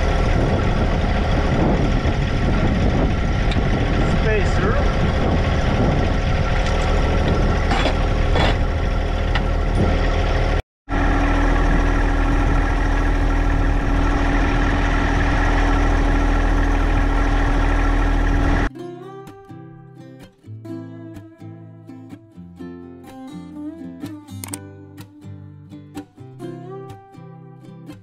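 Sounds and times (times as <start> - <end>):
engine idling: 0.0 - 18.7.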